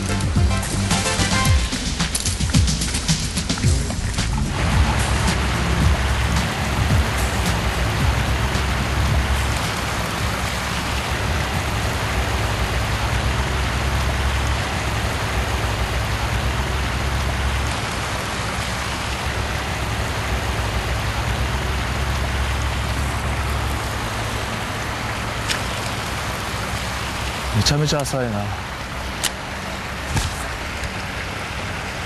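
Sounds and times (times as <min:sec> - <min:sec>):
low rumble: 0:00.0 - 0:17.9
stream water rushing: 0:00.0 - 0:32.0.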